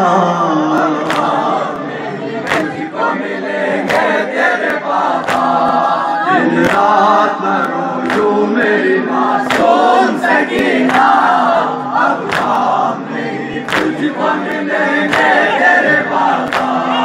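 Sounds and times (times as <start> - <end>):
men singing in chorus: 0.0 - 17.0
hands slapping chests: 1.0 - 1.8, 2.4 - 2.9, 3.8 - 5.8, 6.6 - 6.9, 7.6 - 8.4, 9.4 - 9.8, 10.5 - 11.2, 12.2 - 12.6, 13.6 - 15.5, 16.4 - 16.8.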